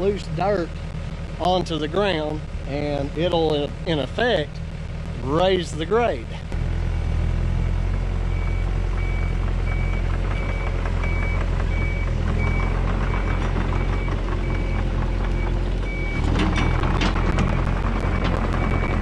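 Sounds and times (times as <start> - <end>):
excavator engine running: 0.0 - 19.0
metal clanking and rattling: 16.2 - 18.7.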